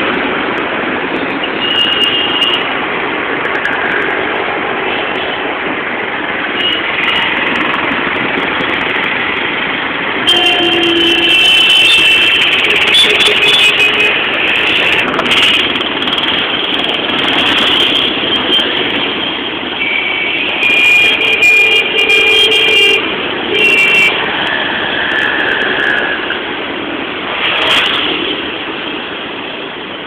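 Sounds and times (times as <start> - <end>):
road traffic rumble: 0.0 - 30.0
vehicle horn honking: 10.2 - 15.1, 19.8 - 24.2.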